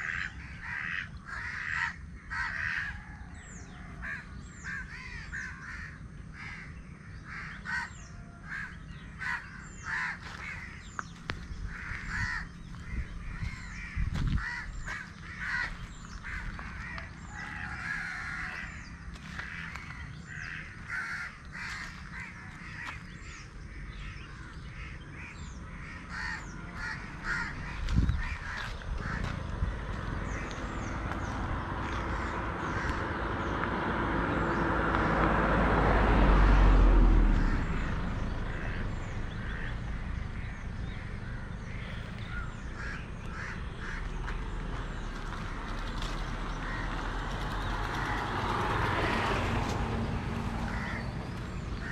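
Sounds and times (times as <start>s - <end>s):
crows cawing: 0.0s - 33.8s, 37.3s - 51.9s
low rumble: 26.4s - 46.6s.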